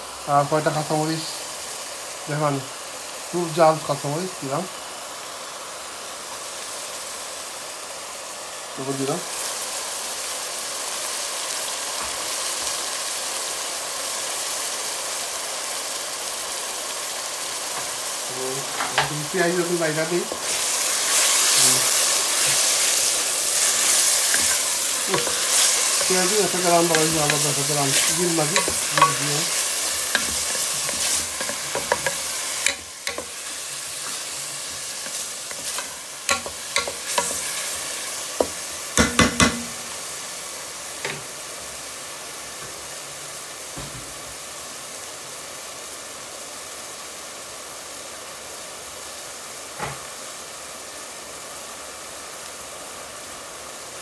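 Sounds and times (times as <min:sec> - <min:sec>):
onions sizzling in hot oil: 0:00.0 - 0:54.0
wooden spoon knocking against pot: 0:38.4 - 0:39.8.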